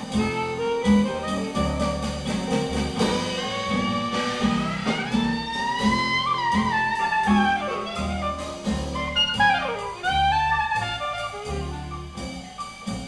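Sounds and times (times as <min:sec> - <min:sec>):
plucked string bass: 0:00.0 - 0:12.4
clarinet jazz solo: 0:00.0 - 0:13.0
drums: 0:00.0 - 0:13.0.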